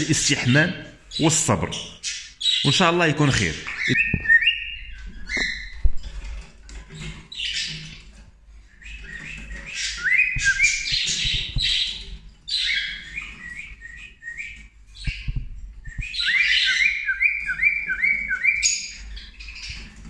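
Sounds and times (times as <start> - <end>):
cockatiel whistling and chirping: 3.8 - 5.9, 8.7 - 19.8.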